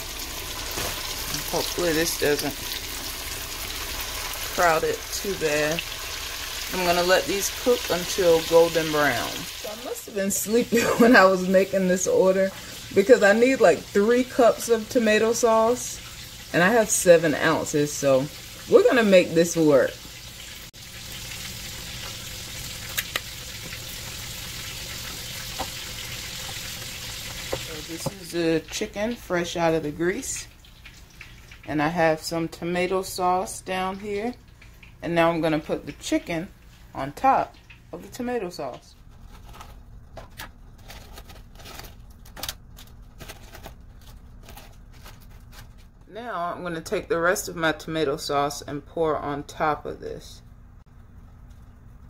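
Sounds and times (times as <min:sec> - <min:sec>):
chicken frying in hot oil: 0:00.0 - 0:38.8.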